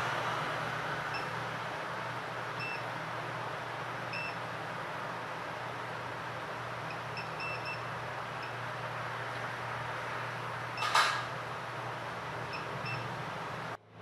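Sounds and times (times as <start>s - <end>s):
hot-air station hiss and hum: 0.0s - 14.0s
short high-pitched beeps: 4.1s - 4.4s, 6.9s - 8.6s.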